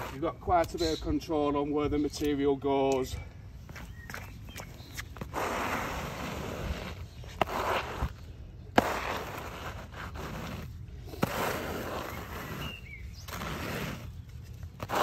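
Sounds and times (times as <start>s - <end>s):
squeegee scraping across slabs: 0.0s - 1.1s, 4.8s - 15.0s.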